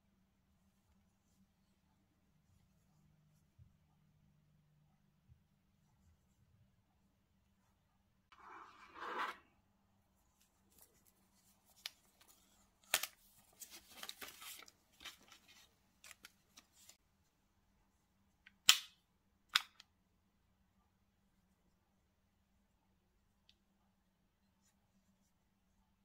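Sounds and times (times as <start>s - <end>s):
sharp plastic snaps: 18.5s - 19.9s.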